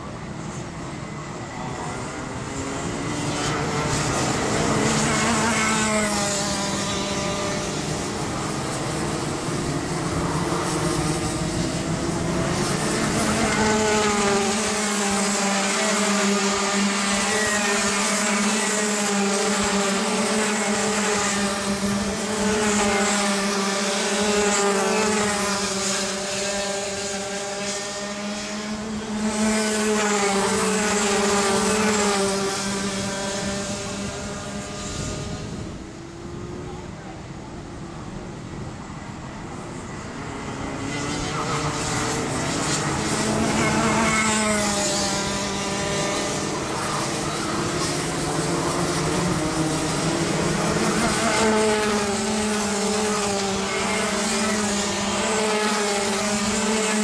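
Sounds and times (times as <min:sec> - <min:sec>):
kart engines racing: 0:00.0 - 0:57.0.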